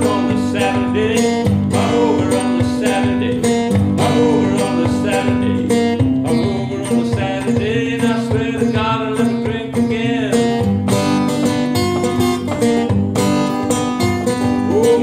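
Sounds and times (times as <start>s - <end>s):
man singing: 0.0s - 10.8s, 14.5s - 15.0s
acoustic guitar strummed: 0.0s - 15.0s.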